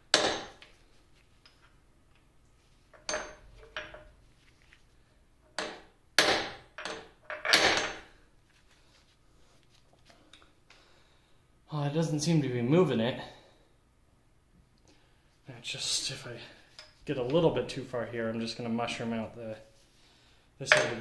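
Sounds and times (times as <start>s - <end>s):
hammer striking metal punch: 0.1s - 0.6s, 5.6s - 8.0s.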